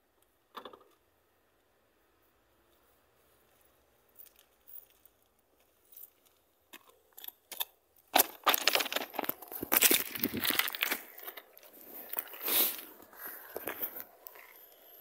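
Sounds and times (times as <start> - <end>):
stones crunching and scraping: 7.2 - 14.6.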